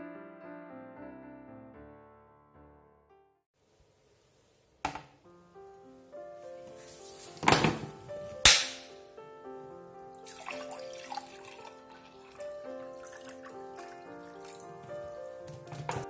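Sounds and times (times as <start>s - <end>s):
background music: 5.3s - 16.0s
water pouring into a glass mug: 10.1s - 15.2s.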